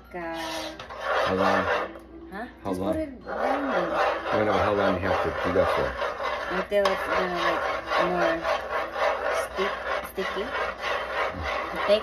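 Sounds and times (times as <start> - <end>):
utensil scraping a cooking pot: 0.1 - 12.0.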